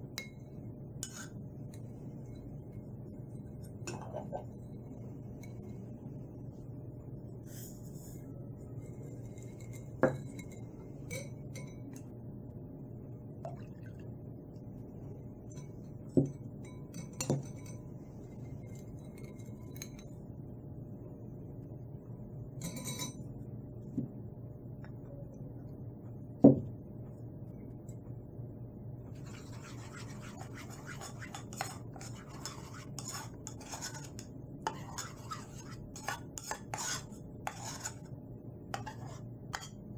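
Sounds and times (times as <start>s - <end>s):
low steady hum: 0.0s - 39.9s
spoon stirring in ceramic bowl: 0.1s - 6.7s, 8.5s - 12.2s, 15.1s - 20.3s, 22.5s - 23.4s, 29.1s - 39.9s
spoon scraping metal bowl: 1.0s - 2.5s, 8.8s - 12.0s, 29.2s - 38.1s, 38.7s - 39.8s
spoon clinking against bowl: 9.2s - 12.1s, 15.5s - 17.9s, 18.7s - 20.2s, 22.6s - 23.3s.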